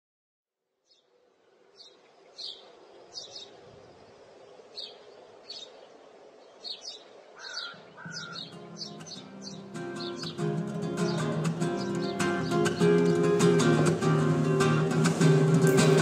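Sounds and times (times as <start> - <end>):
faint steady background ambience: 0.7 - 16.0
birds chirping: 0.8 - 16.0
guitar music: 8.2 - 16.0.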